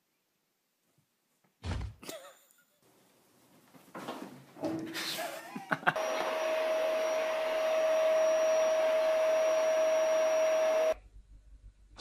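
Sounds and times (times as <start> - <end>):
electric motor humming with air rush: 6.0 - 11.0.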